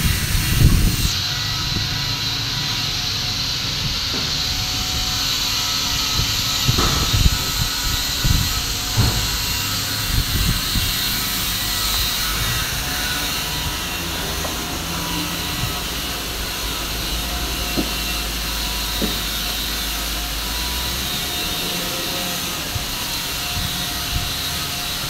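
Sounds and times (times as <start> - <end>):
workshop background hiss: 0.0 - 25.0
dull low thumps: 6.0 - 13.1.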